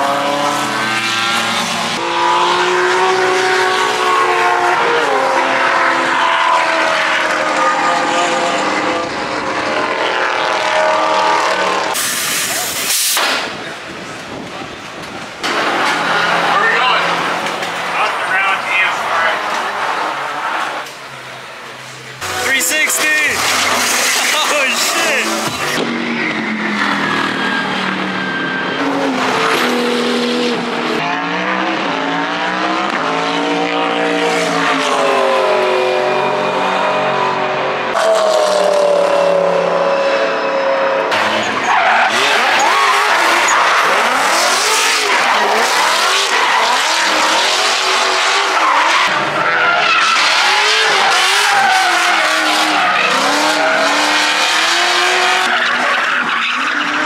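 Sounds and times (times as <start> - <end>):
race car engines revving: 0.0 - 57.0
tire squeal: 10.2 - 13.2, 22.2 - 30.2, 34.3 - 57.0.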